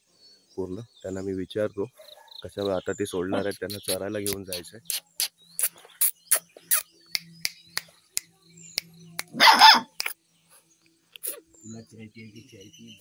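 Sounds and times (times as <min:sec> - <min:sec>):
dog barking: 0:09.4 - 0:10.0.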